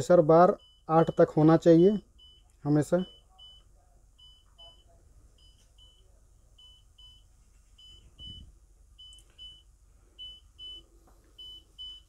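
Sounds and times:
high double warning beep: 0.0 - 12.0.

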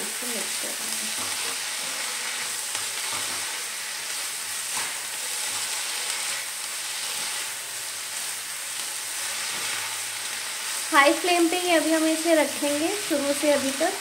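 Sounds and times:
vegetables sizzling in pan: 0.0 - 14.0
wooden spatula scraping: 1.0 - 7.6, 9.1 - 10.9.

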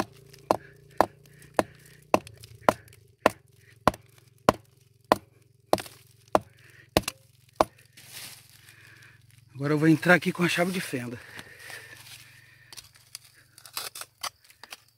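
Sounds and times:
steel tool striking rock: 0.0 - 7.8.

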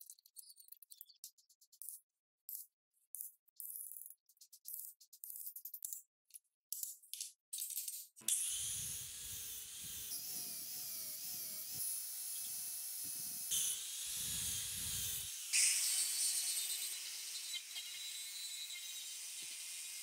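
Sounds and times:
angle grinder sanding wood: 8.3 - 20.0.

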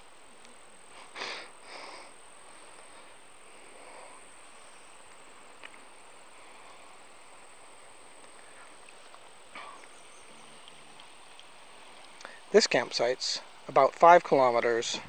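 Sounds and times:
faint open-air hiss: 0.0 - 15.0
insects trilling: 0.0 - 15.0
light tick: 10.6 - 12.3.

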